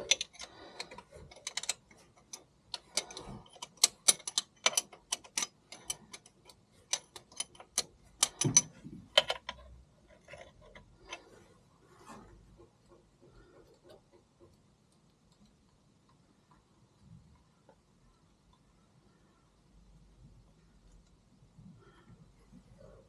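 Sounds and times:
metallic clicks of hand tool: 0.0 - 9.6.

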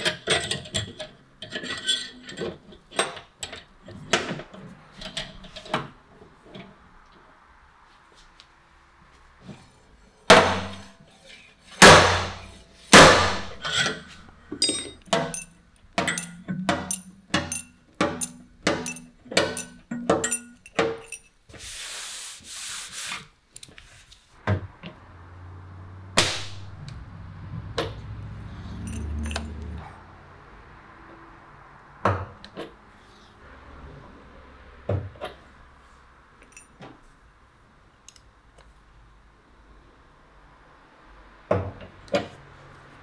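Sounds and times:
tools striking metal panel: 11.8 - 13.8.

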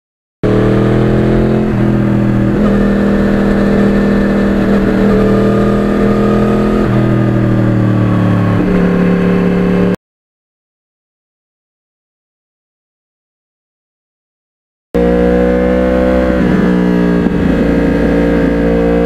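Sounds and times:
motorcycle engine cruising: 0.4 - 10.0, 15.0 - 19.0.

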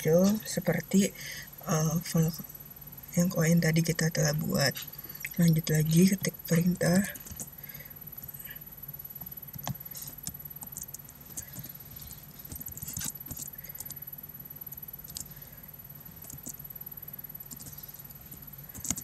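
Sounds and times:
computer keyboard keys clicking: 9.2 - 11.7, 12.5 - 14.0, 15.0 - 15.3, 16.2 - 16.6, 17.5 - 17.8, 18.7 - 19.0.

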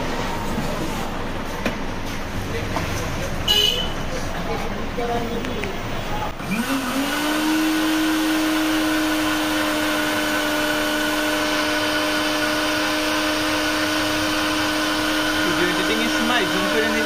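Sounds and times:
blender motor whining: 6.3 - 17.0.

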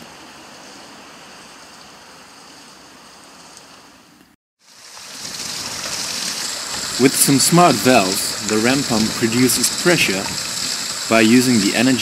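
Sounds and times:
water rushing down a chute: 4.6 - 12.0.

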